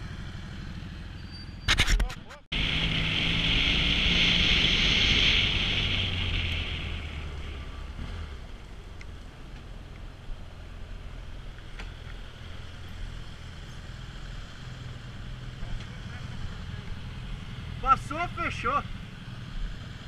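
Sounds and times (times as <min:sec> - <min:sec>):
motorcycle engine: 0:02.3 - 0:09.3.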